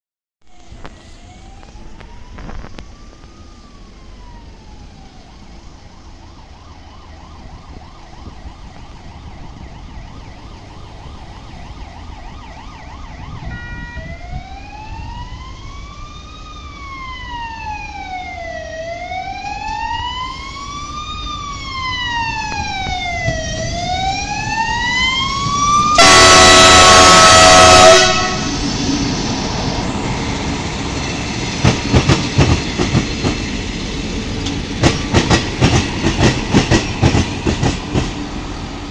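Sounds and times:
siren wailing: 0.8 - 31.4
train horn blasting: 13.5 - 14.2, 25.7 - 28.6
train rumble: 18.8 - 38.9.

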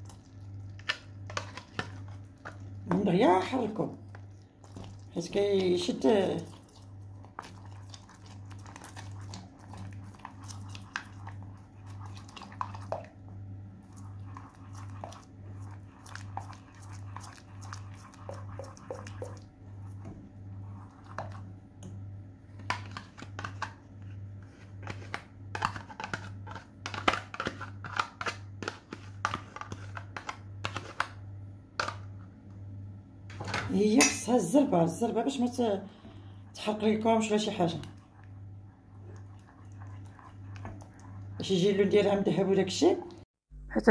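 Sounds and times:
wooden spoon scraping saucepan: 14.0 - 21.5
low pulsing hum: 43.1 - 43.9.

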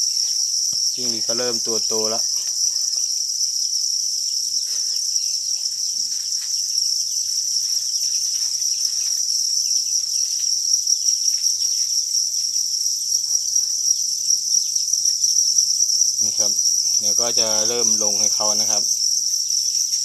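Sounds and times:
crickets chirping: 0.0 - 20.0
light scratchy rustles: 4.6 - 10.6.

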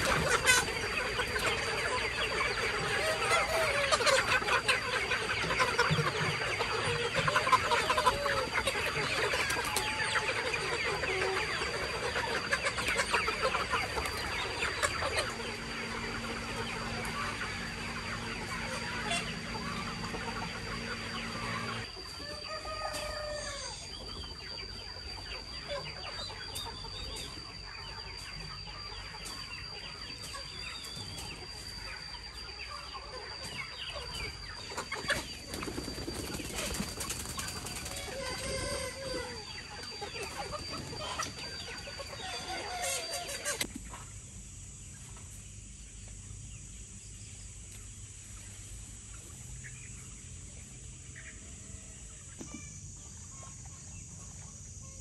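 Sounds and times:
roosters crowing: 0.0 - 23.9, 35.4 - 43.7
chickens clucking: 0.0 - 55.0.

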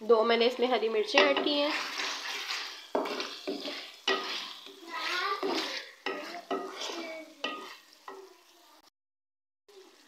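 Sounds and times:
food frying: 0.0 - 8.9, 9.7 - 10.0
wooden spatula scraping metal pot: 0.5 - 8.3.

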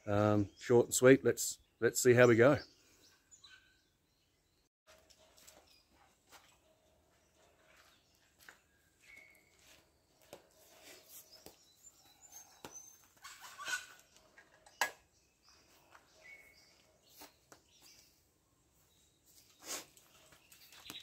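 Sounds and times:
bird chirps: 1.5 - 6.1, 7.1 - 21.0
footsteps: 4.9 - 11.6.

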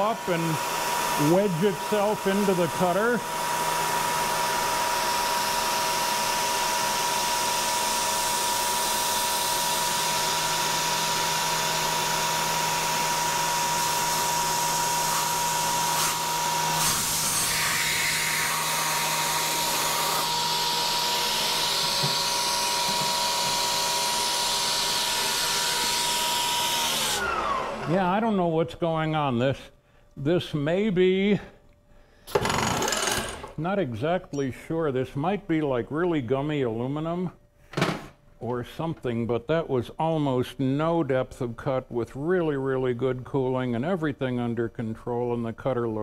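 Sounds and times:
milling machine spindle whine: 0.0 - 28.0.

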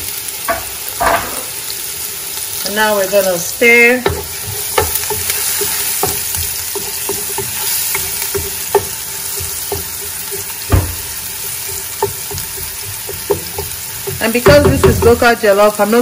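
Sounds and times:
onions sizzling in oil: 0.0 - 16.0
wooden spatula tapping and scraping: 3.9 - 15.5.

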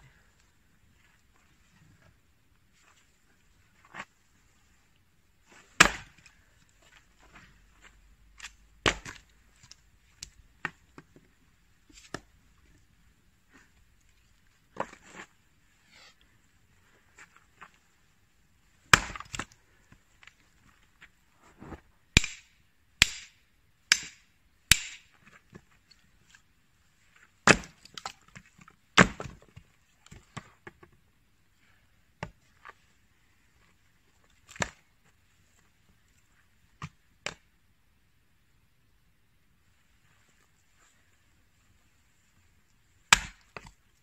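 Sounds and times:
axe chopping firewood: 5.7 - 6.3, 8.4 - 10.8, 18.9 - 19.6, 22.2 - 25.2, 27.4 - 30.5, 34.5 - 34.8, 43.1 - 43.8.

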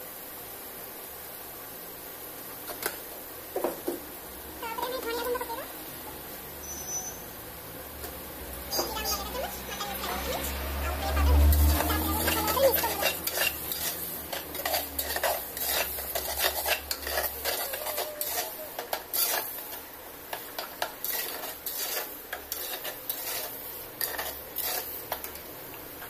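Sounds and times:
curry sizzling: 0.0 - 26.0
spoon scraping clay pot: 11.1 - 19.8, 20.4 - 25.4.

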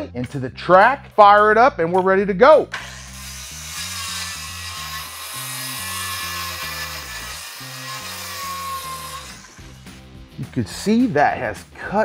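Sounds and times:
bass-heavy music: 0.0 - 7.3, 8.4 - 12.0
circular saw cutting board: 2.7 - 10.2.

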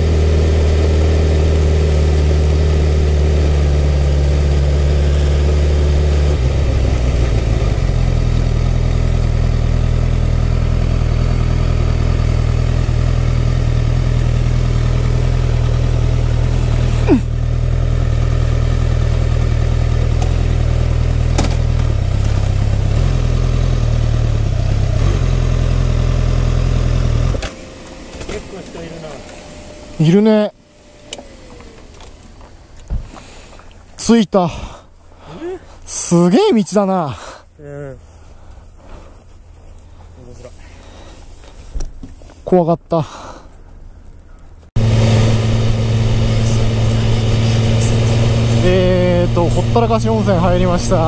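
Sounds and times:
motorcycle engine idling: 0.0 - 27.3, 43.6 - 51.0.

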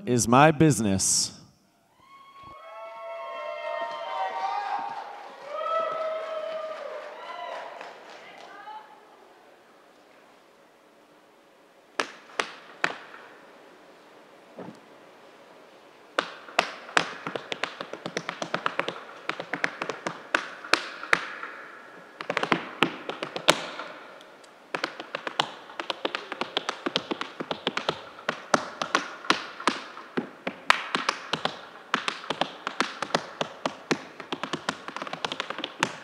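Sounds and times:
tap shoes on stage floor: 16.2 - 21.6, 22.2 - 24.0, 24.7 - 36.0.

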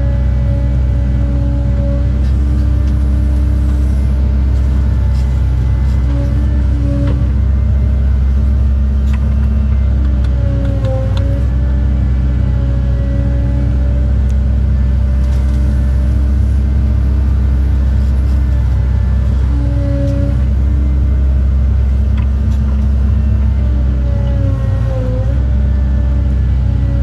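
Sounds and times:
hydraulic whine: 0.0 - 14.4
excavator diesel engine running: 0.0 - 27.0.

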